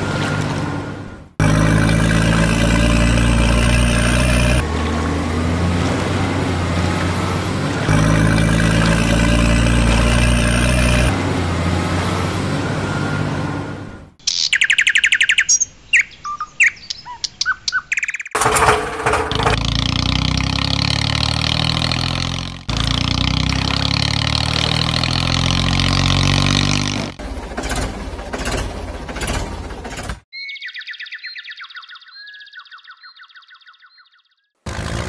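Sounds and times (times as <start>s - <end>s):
truck engine running: 0.0s - 14.2s, 18.4s - 30.2s, 34.7s - 35.0s
birds chirping: 12.9s - 18.4s, 19.5s - 27.0s, 30.3s - 34.6s.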